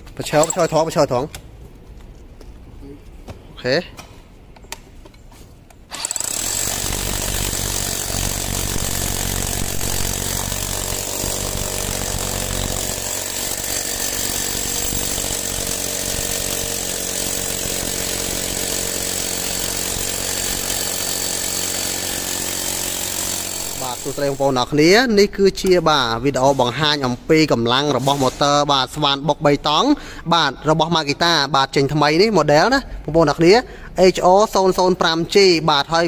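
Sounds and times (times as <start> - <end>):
rotary hammer drilling concrete: 0.3 - 0.9, 5.9 - 24.7.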